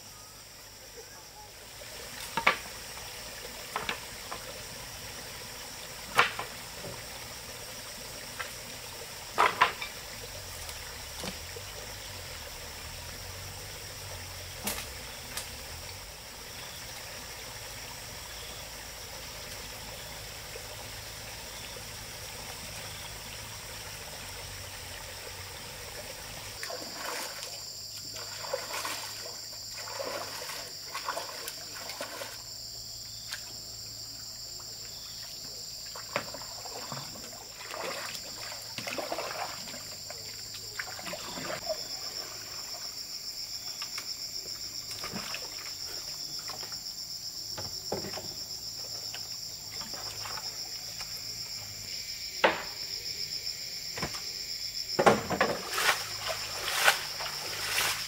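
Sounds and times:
insect chorus: 0.0 - 58.0
water trickling: 0.4 - 52.0, 55.1 - 58.0
paddle splashing water: 25.5 - 32.6, 34.8 - 43.2, 44.6 - 46.9, 47.8 - 51.2, 55.0 - 58.0.

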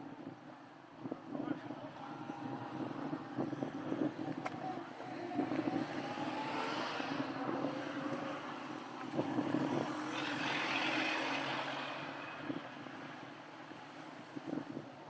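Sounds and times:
car driving past: 2.1 - 14.1.

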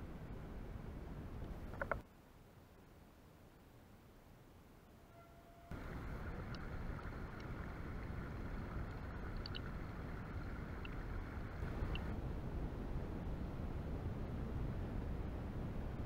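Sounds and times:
stream gurgling over stones: 5.7 - 12.1.

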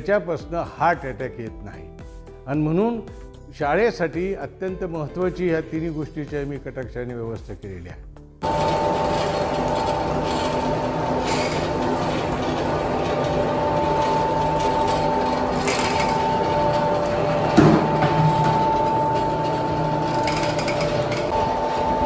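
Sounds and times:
mechanical whine: 8.4 - 22.0
oil press pestle turning: 8.4 - 22.0.

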